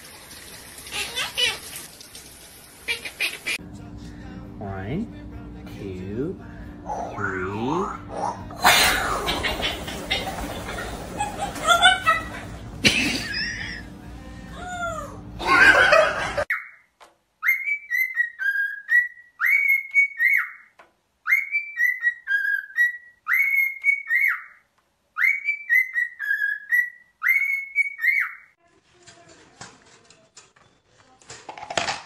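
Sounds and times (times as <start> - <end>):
parrot laugh-like calls: 2.8 - 3.6, 8.1 - 13.9, 14.6 - 16.8
cockatiel whistling a tune: 17.4 - 20.7, 21.3 - 24.6, 25.2 - 28.4.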